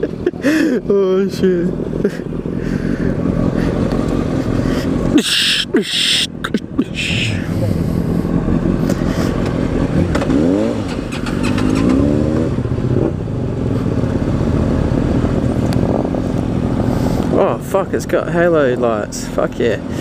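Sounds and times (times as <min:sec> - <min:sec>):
motorcycle engine revving: 0:00.0 - 0:05.2, 0:07.0 - 0:20.0.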